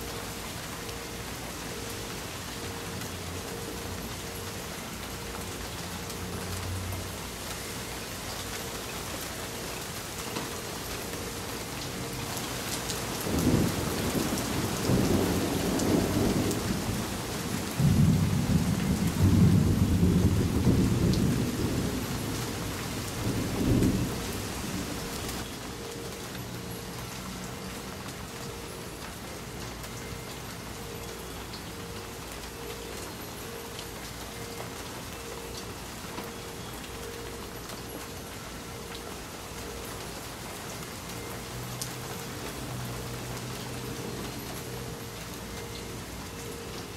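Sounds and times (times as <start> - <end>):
steady rain falling: 0.0 - 46.9
rolling thunder: 13.3 - 22.5.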